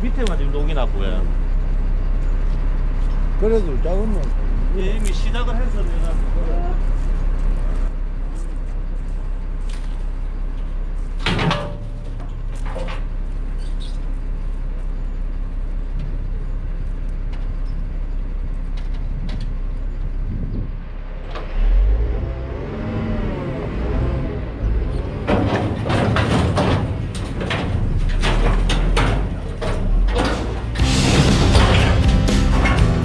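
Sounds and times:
truck engine running: 0:00.0 - 0:33.0
hydraulic crane moving: 0:24.6 - 0:33.0
sharp metal clanks: 0:27.6 - 0:33.0.

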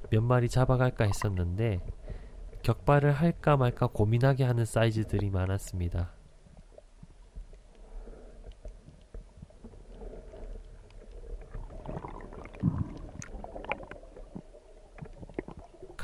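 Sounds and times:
muffled underwater movement: 0:00.0 - 0:16.0.

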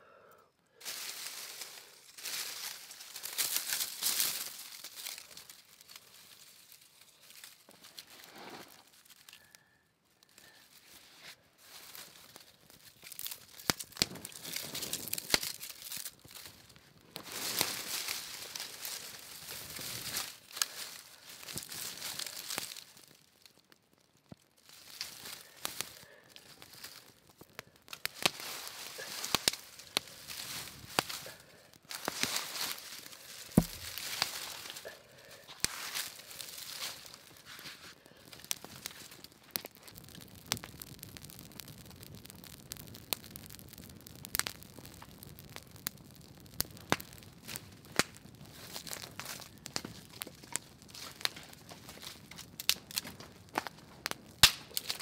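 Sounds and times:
crinkling and rustling: 0:00.8 - 0:09.3, 0:31.9 - 0:40.8, 0:47.5 - 0:55.0.

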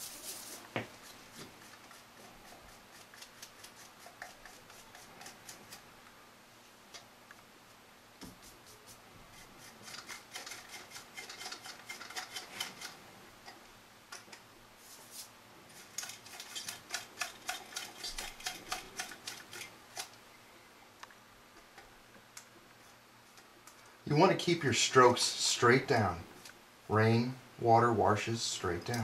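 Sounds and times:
paintbrush scratching on plastic: 0:00.0 - 0:05.8.

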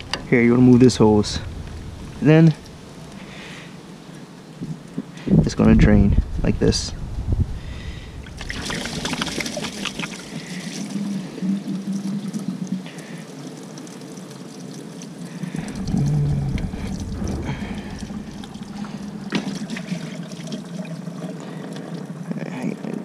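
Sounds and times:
brief low rumble: 0:01.0 - 0:03.3, 0:15.6 - 0:19.3
coolant pouring into bucket: 0:08.2 - 0:23.0.

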